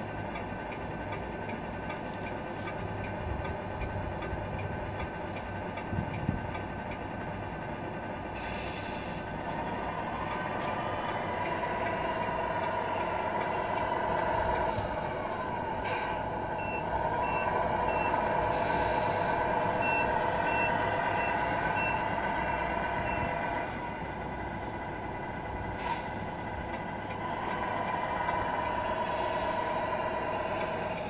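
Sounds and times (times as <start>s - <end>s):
simulated diesel engine revving: 6.3s - 31.0s
air brake hisses: 8.4s - 15.0s, 15.8s - 16.4s, 18.4s - 19.8s, 25.8s - 26.2s, 27.3s - 30.8s
reversing beeper: 8.4s - 23.8s.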